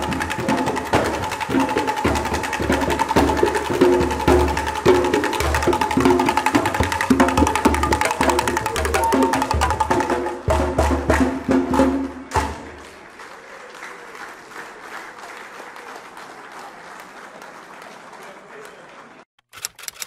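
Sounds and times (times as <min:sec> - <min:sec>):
drum-led percussion music: 0:00.0 - 0:12.9
audience applauding: 0:00.0 - 0:19.3.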